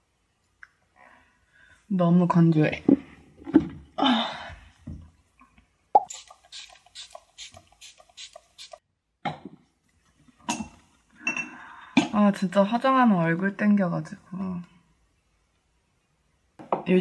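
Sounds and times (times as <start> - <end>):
short hissing spray pumps: 6.1 - 8.8.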